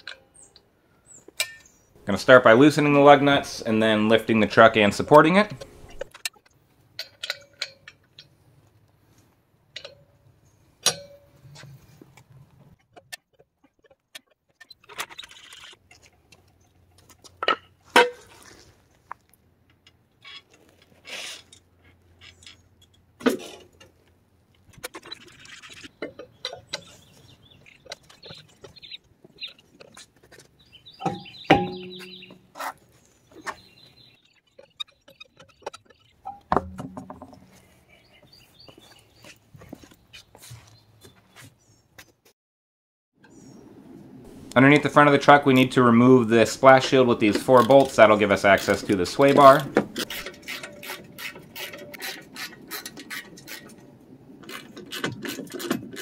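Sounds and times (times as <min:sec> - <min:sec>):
metallic clanks and knocks: 0:10.8 - 0:11.7, 0:31.0 - 0:32.4, 0:34.5 - 0:37.6.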